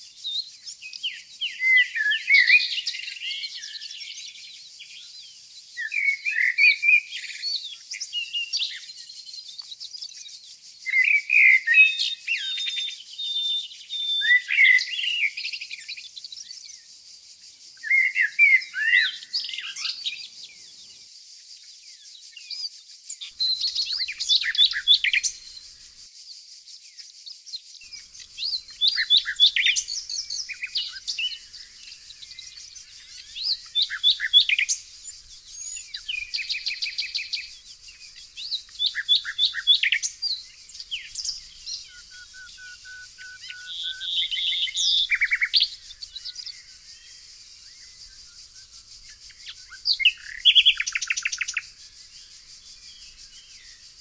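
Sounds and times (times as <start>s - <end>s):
bird song phrases: 0.0s - 54.0s
distant birds twittering: 23.3s - 26.1s, 27.9s - 54.0s.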